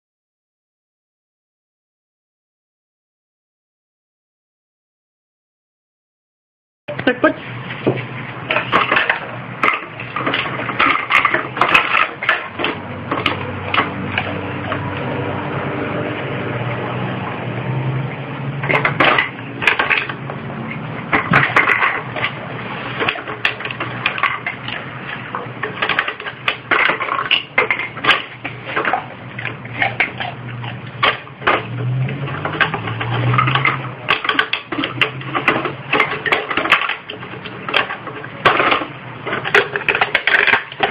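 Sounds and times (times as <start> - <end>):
plastic bottles clattering: 7.8 - 15.0, 18.6 - 40.9.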